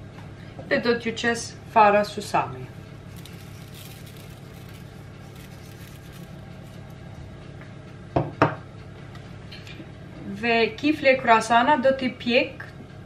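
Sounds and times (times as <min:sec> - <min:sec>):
low kitchen hum: 0:00.0 - 0:13.0
kitchenware knocking on worktop: 0:08.2 - 0:08.6.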